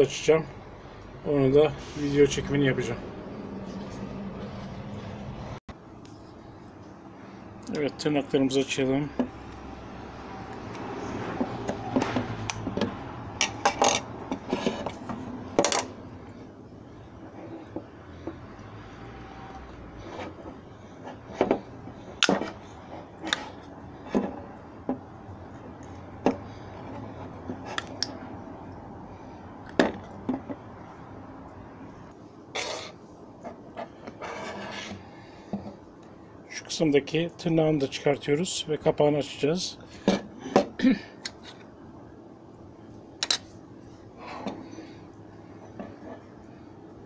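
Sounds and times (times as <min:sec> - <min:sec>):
sharp clicks taps and scrapes: 0:20.0 - 0:25.0, 0:25.6 - 0:28.2.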